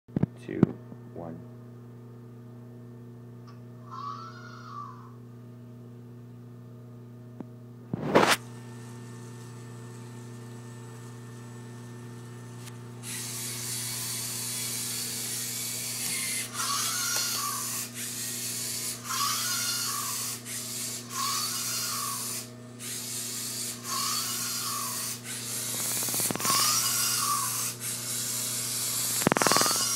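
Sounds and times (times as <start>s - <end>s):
robot motors and gears whirring: 13.0s - 29.9s.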